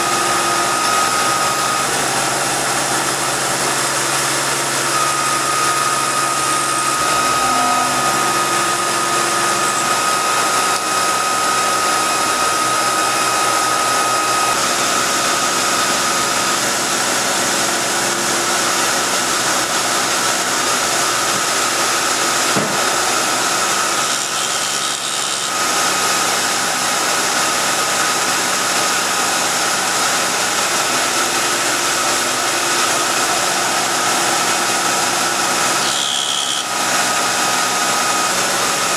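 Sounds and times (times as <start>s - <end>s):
milling machine whine: 0.0s - 38.9s
clear high tone: 7.0s - 9.2s.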